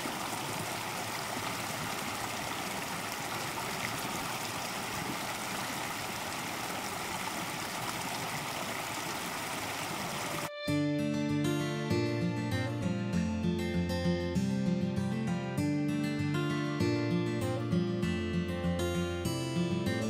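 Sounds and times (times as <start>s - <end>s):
creek running: 0.0s - 10.6s.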